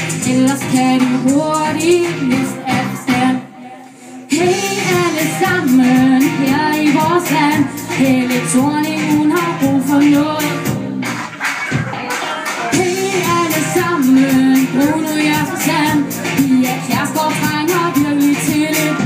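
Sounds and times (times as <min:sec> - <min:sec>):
woman singing pop song: 0:00.0 - 0:11.1, 0:12.2 - 0:19.0
band accompaniment: 0:04.4 - 0:19.0.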